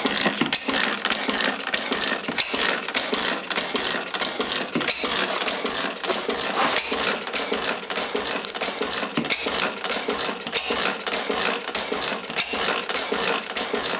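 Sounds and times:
stationary gas engine clattering: 0.0s - 13.9s.

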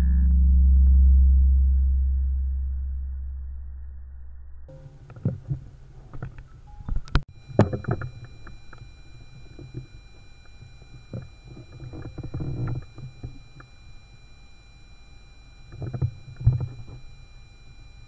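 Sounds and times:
low rumble: 0.0s - 4.7s
faint high whine: 0.5s - 18.0s
handling bumps and rubbing: 4.7s - 13.6s.

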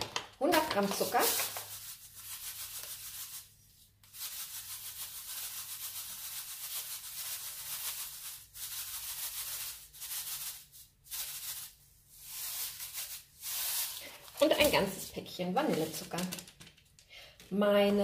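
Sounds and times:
sugar pouring into glass bowl: 0.8s - 3.5s, 4.1s - 14.8s.

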